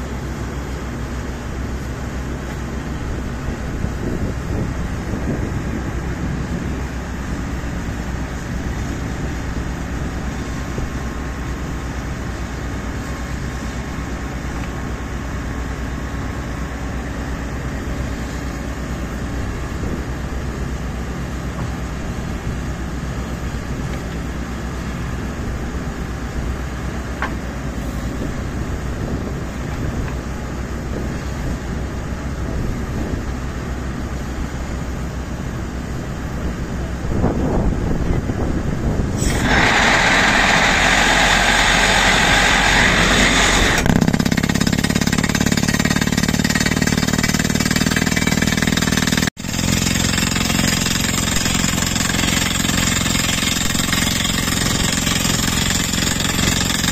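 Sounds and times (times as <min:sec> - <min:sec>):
drill rig engine running: 0:39.0 - 0:56.9
rapid drill rattle: 0:39.2 - 0:56.9.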